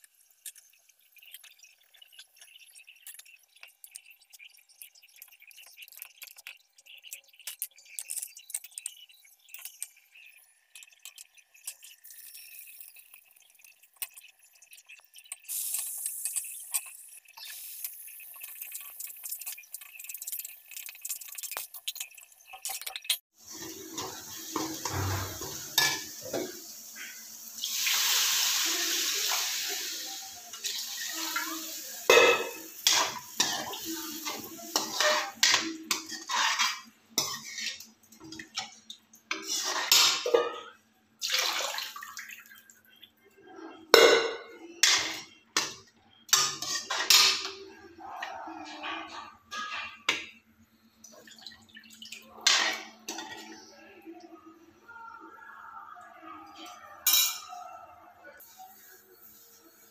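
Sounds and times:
water hissing in hot pan: 7.8 - 22.2, 23.4 - 37.9
metal ladle scraping metal pan: 23.5 - 26.5, 32.1 - 37.9, 39.3 - 40.6, 44.0 - 47.6.

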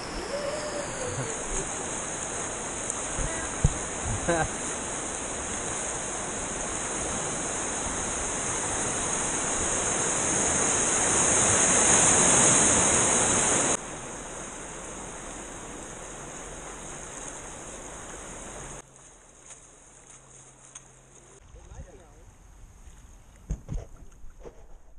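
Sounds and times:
moving water rushing: 0.0 - 18.8
whitewater roaring: 0.0 - 18.8.

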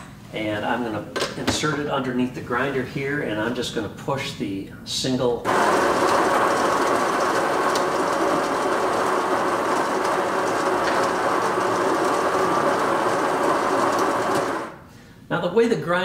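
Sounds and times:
coffee grinder grinding beans: 5.5 - 14.8.

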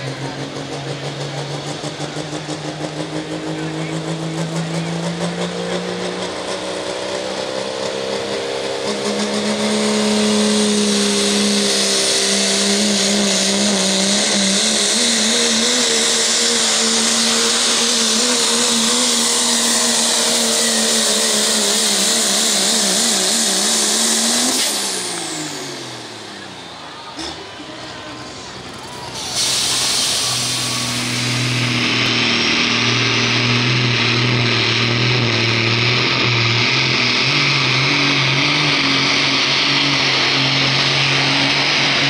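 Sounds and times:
diesel engine at full throttle: 0.0 - 42.0
loud hiss: 29.0 - 31.9.

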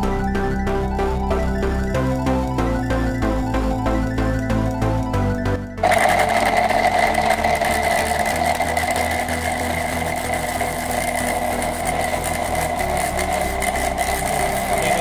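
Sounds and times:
blender motor whining and rattling: 5.8 - 15.0.

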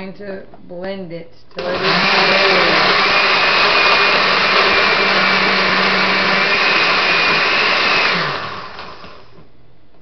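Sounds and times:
blender running: 1.6 - 9.4.

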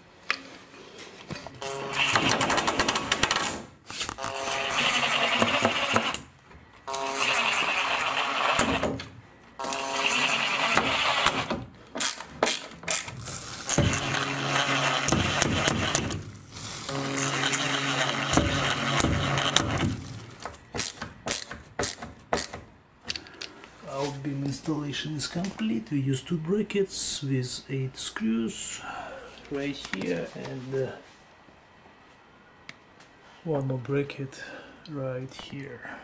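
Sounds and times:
cordless drill motor whining: 4.1 - 6.2, 6.8 - 8.8, 9.6 - 11.5, 13.6 - 16.1, 16.8 - 19.9.

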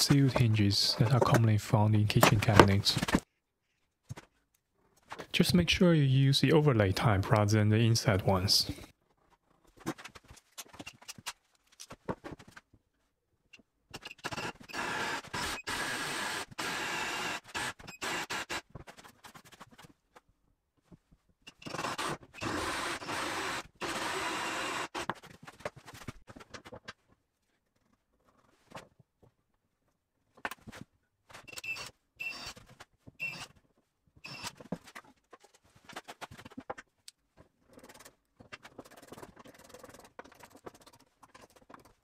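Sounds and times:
handling clicks and knocks: 0.0 - 3.2
cordless drill boring into wood: 14.4 - 18.6, 21.6 - 25.1, 34.3 - 34.5.

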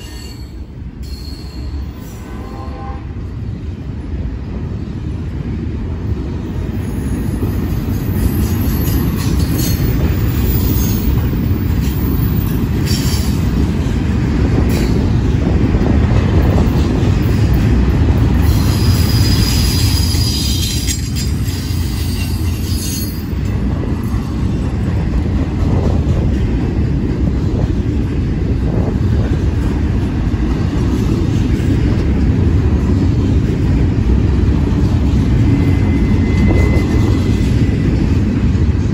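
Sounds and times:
high-pitched wheel squeals: 0.0 - 2.2, 35.4 - 38.2
freight train wheels rumbling: 0.0 - 38.9.

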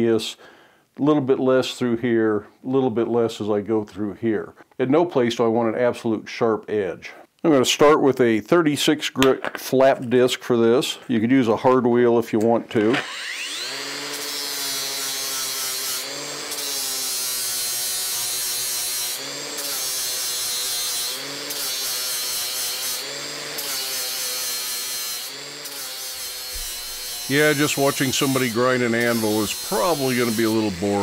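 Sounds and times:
angle grinder grinding steel: 12.7 - 31.0.

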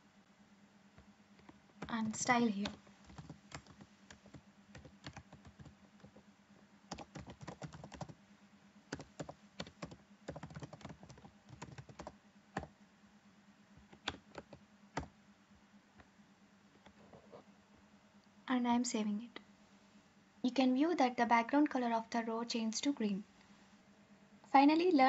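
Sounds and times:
faint keyboard typing: 1.0 - 8.2, 8.9 - 12.8, 13.8 - 15.2, 15.9 - 17.5.

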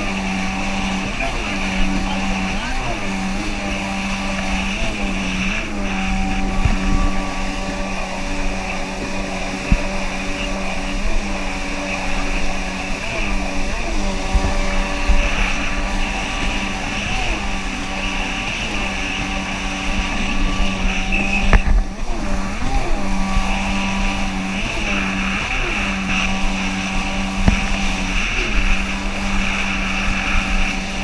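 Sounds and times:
jet ski engine running: 0.0 - 31.0
rushing water and spray: 0.0 - 31.0.

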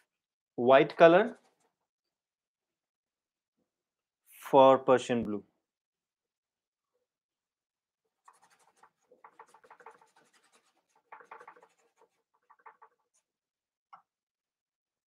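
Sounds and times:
paintbrush scratching on canvas: 0.9 - 1.9, 8.1 - 13.4.

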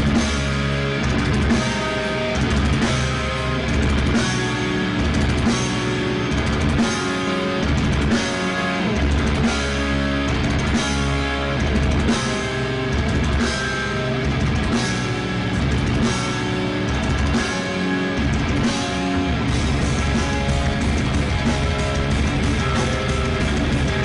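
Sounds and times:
distorted electric guitars: 0.0 - 24.0
drum kit: 0.0 - 24.0.

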